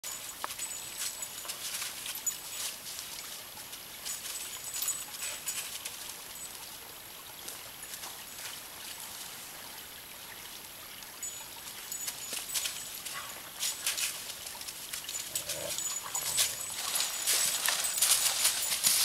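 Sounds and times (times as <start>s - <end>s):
rustling in dry leaves: 0.0s - 6.8s, 11.6s - 19.0s
creek trickling: 0.0s - 19.0s.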